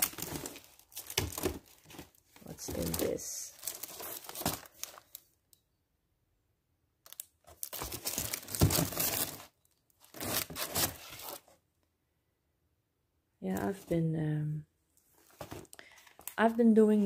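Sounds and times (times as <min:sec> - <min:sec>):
cellophane crinkling: 0:00.0 - 0:05.3, 0:07.0 - 0:11.5.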